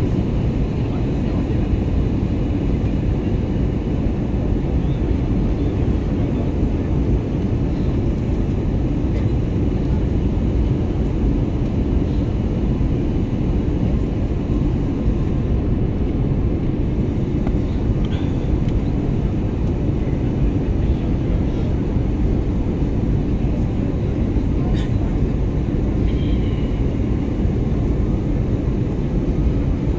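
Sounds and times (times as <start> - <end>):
airliner cabin rumble: 0.0 - 29.9.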